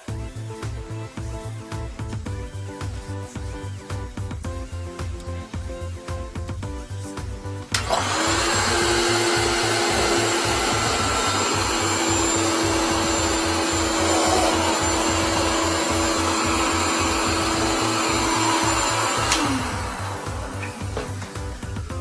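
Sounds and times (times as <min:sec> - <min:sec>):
background music with steady beat: 0:00.0 - 0:22.0
wet dry vacuum motor running: 0:07.8 - 0:21.2.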